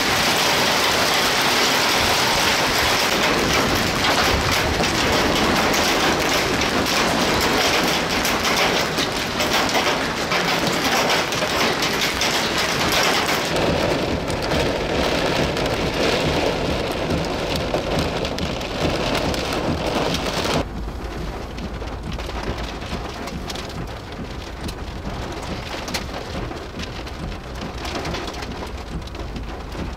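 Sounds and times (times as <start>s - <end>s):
hailstones pelting ground: 0.0s - 29.9s
low rumble: 11.3s - 29.9s.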